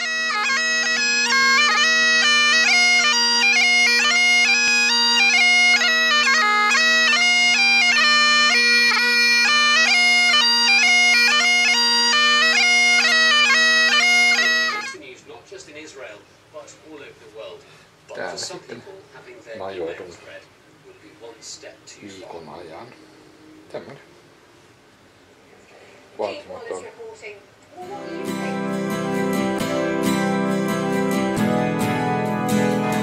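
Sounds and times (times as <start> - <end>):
bagpipe playing quick melody: 0.0 - 15.0, 27.8 - 33.0.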